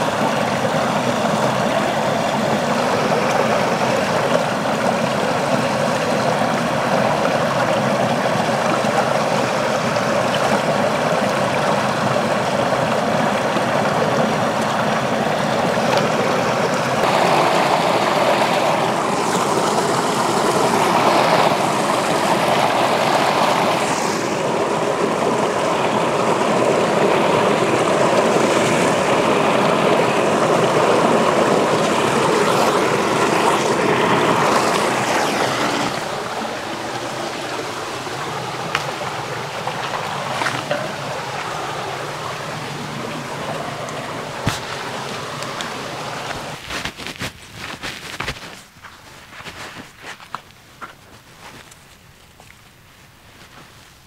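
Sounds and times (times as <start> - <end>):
stream running water: 0.0 - 54.0.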